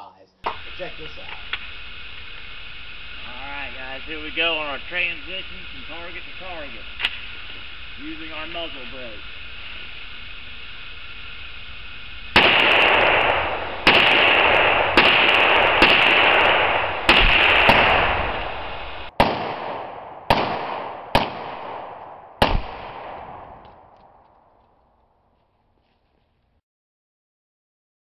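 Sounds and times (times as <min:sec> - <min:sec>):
rifle shots echoing: 0:00.4 - 0:24.7
exploding target boom: 0:12.3 - 0:24.2.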